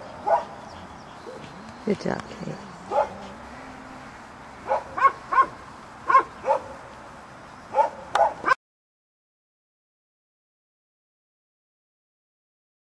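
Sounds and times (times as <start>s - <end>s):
dog barking: 0.2s - 0.5s, 2.9s - 3.4s, 4.6s - 6.8s, 7.7s - 8.6s.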